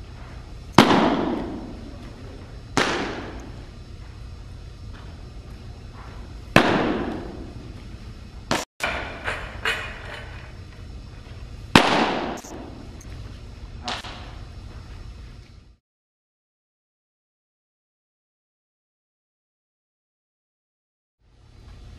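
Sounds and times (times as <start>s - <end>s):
baseball smacking into mitt: 0.8s - 1.7s, 2.8s - 3.4s, 6.5s - 7.5s.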